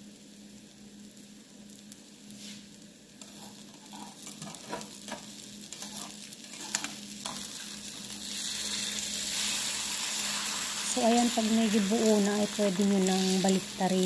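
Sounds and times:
eggs sizzling in a frying pan: 0:00.0 - 0:14.0
metal spatula scraping a pan: 0:03.2 - 0:04.8, 0:05.7 - 0:10.7.

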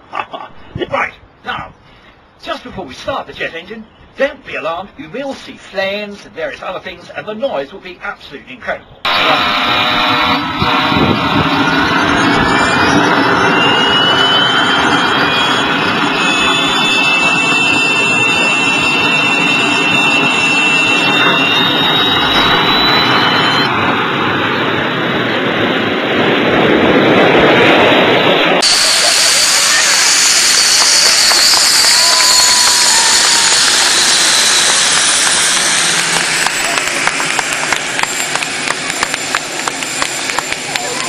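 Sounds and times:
turbine jet engine spooling up: 0:09.1 - 0:41.0.

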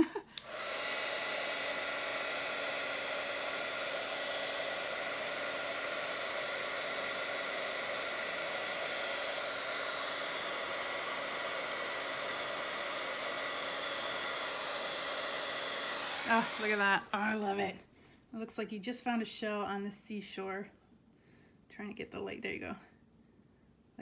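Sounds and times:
heat tool blowing air: 0:00.0 - 0:17.6.

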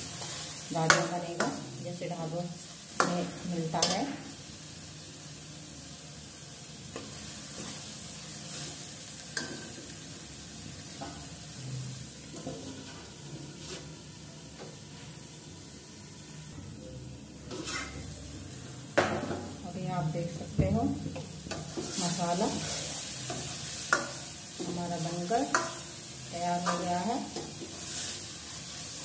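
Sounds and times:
paste sizzling in oil: 0:00.0 - 0:16.5, 0:17.5 - 0:18.2, 0:21.0 - 0:29.0
steel spoon scraping pan: 0:17.5 - 0:18.1.

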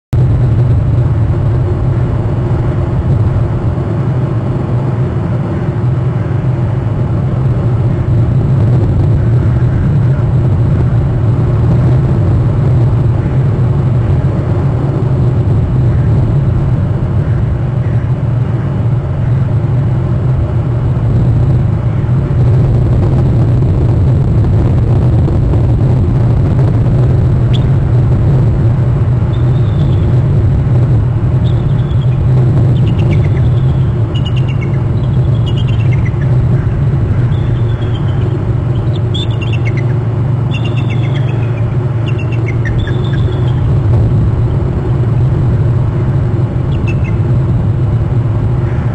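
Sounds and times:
low outdoor rumble: 0:00.0 - 0:48.9.

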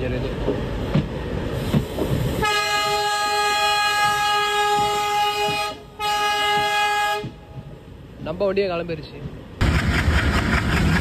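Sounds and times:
locomotive air horn blasts: 0:02.4 - 0:07.4.

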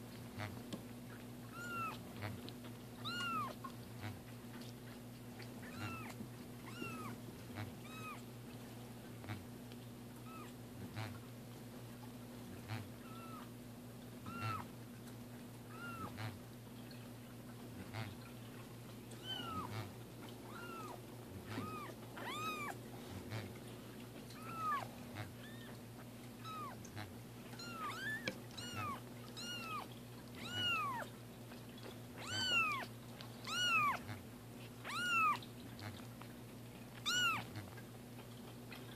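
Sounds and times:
kitten meowing: 0:01.5 - 0:02.0, 0:03.0 - 0:03.6, 0:05.6 - 0:07.2, 0:07.8 - 0:08.2, 0:10.2 - 0:10.6, 0:13.0 - 0:13.5, 0:14.3 - 0:14.7, 0:15.7 - 0:16.2, 0:19.2 - 0:19.8, 0:20.5 - 0:22.8, 0:24.3 - 0:25.8, 0:26.4 - 0:26.8, 0:27.6 - 0:31.1, 0:32.2 - 0:34.0, 0:34.8 - 0:35.4, 0:37.0 - 0:37.5.

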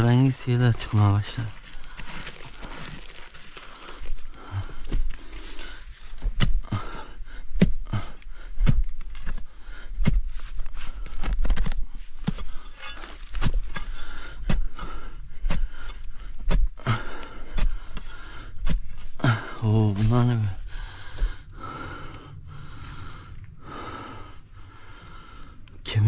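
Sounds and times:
stone scraping: 0:12.7 - 0:13.8.

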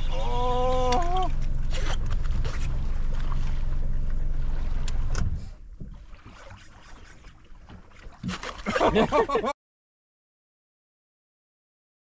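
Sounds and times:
outboard motor humming: 0:00.0 - 0:09.5.

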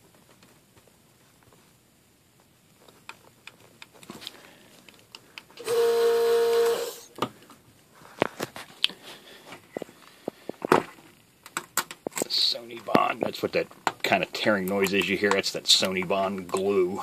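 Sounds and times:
desoldering iron pump running: 0:05.6 - 0:07.0.

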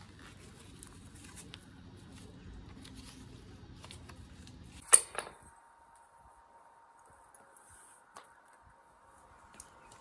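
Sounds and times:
velcro straps rustling and ticking: 0:00.0 - 0:04.8.

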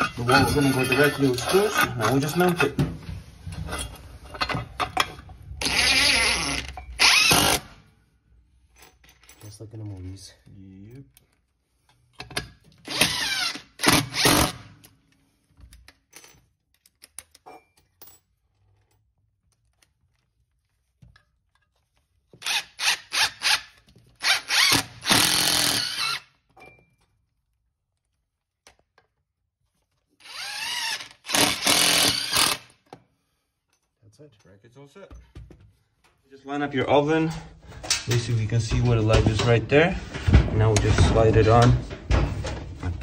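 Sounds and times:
cordless drill driving screws: 0:05.6 - 0:07.7, 0:12.8 - 0:14.7, 0:22.4 - 0:26.3, 0:30.2 - 0:32.7.

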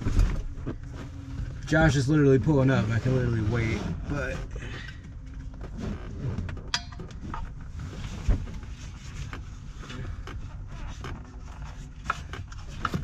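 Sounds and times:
knocks and clicks of wheel shifting: 0:00.0 - 0:13.0.

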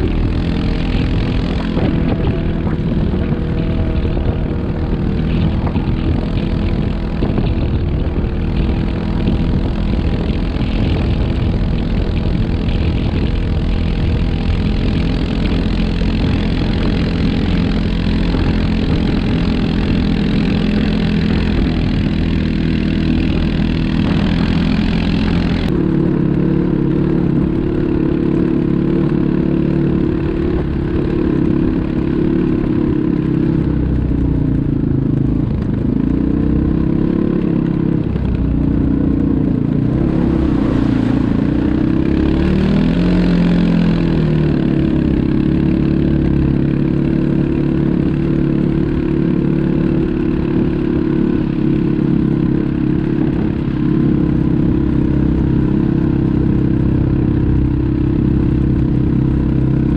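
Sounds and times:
atv engines running: 0:00.0 - 0:59.9.

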